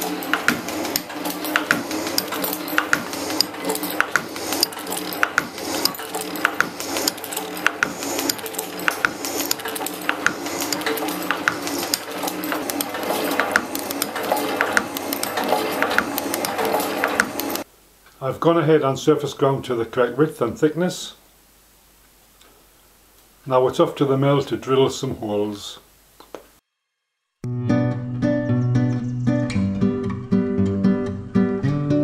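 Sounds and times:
metal shaping machine running: 0:00.0 - 0:17.7
rhythmic sharp clicks: 0:00.0 - 0:18.2.

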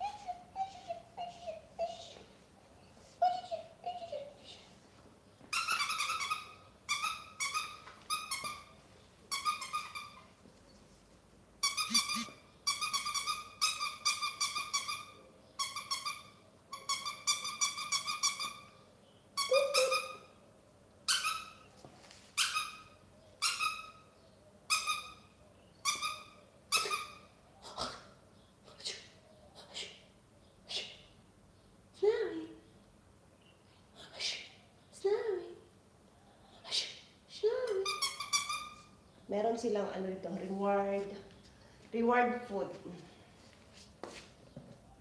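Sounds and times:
squeaky toy squeaking: 0:05.5 - 0:10.3, 0:11.6 - 0:18.8, 0:19.4 - 0:20.4, 0:21.1 - 0:21.7, 0:22.4 - 0:24.1, 0:24.7 - 0:27.4, 0:37.8 - 0:39.0.

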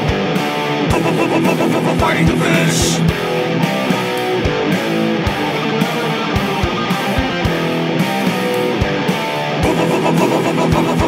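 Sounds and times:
guitar over drum beat: 0:00.0 - 0:11.0.

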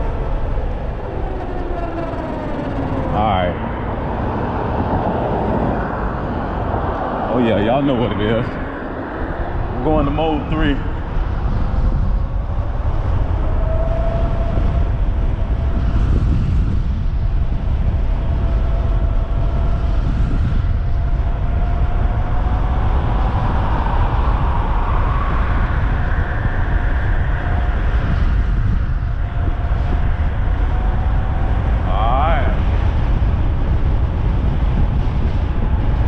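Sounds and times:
wind rumble on microphone: 0:00.0 - 0:36.0
electric bike motor whine: 0:11.0 - 0:36.0.

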